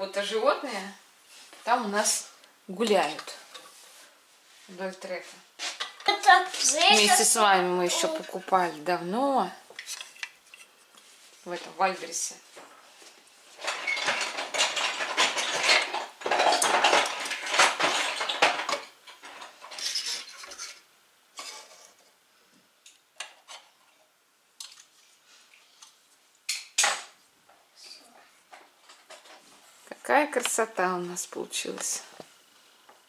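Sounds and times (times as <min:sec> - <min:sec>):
plastic toy figures clattering: 0:13.6 - 0:20.8.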